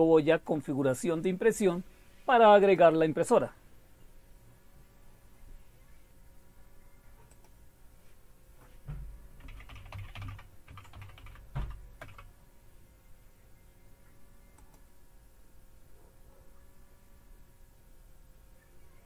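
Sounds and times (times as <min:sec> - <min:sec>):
computer keyboard typing: 0:09.4 - 0:12.3.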